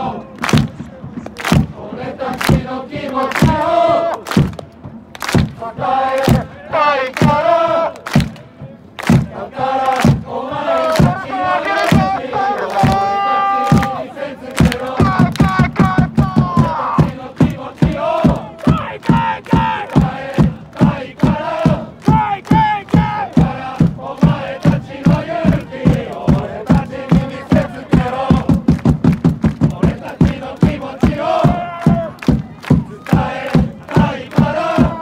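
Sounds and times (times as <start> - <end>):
crowd chanting and singing: 0.0 - 35.0
rhythmic clapping: 0.0 - 35.0.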